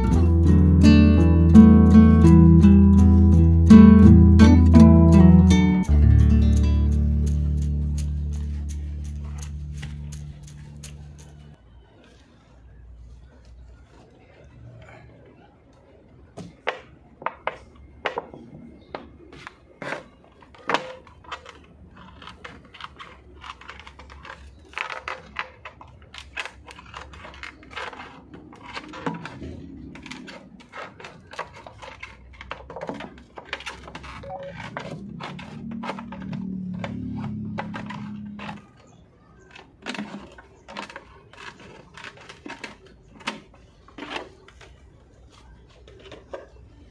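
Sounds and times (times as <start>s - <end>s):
scissors cutting plastic bottle: 19.4s - 44.8s.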